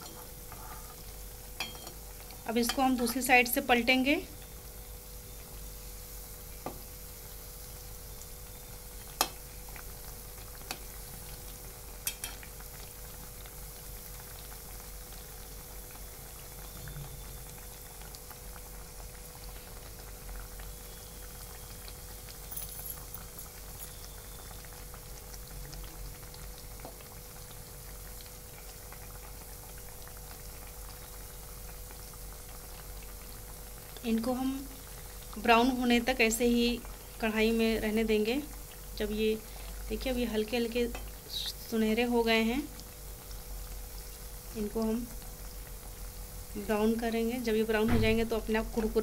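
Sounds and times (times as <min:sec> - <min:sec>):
deep-frying oil sizzling: 0:00.0 - 0:49.0
faint steady hum: 0:00.0 - 0:49.0
metal spoon tapping pan: 0:01.6 - 0:02.0, 0:02.6 - 0:03.2, 0:12.0 - 0:12.4.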